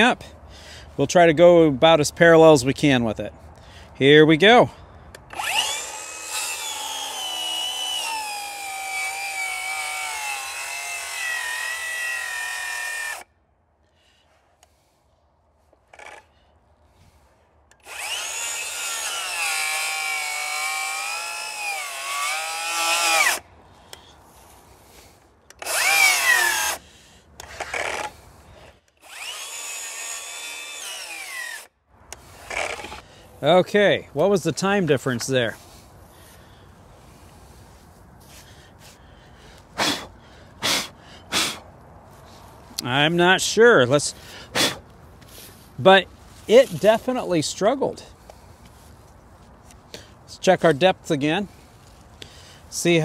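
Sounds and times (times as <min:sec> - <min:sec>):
circular saw cutting log: 0:05.3 - 0:13.3, 0:15.9 - 0:16.3, 0:17.8 - 0:23.4, 0:25.5 - 0:26.8, 0:27.4 - 0:33.0.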